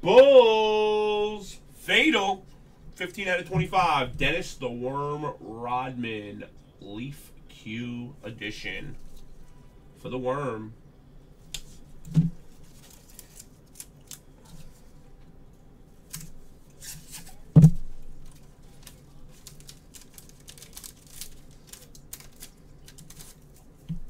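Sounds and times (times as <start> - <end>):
card packaging rustling: 12.4 - 14.9, 18.2 - 24.0
loud thud: 17.5 - 17.9.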